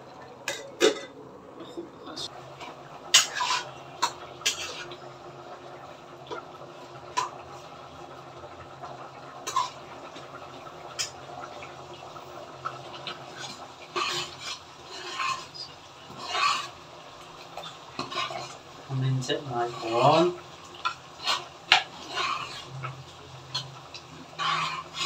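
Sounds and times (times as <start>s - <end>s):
utensils stirring and scraping food: 1.6s - 5.1s, 9.3s - 11.2s, 12.6s - 25.0s.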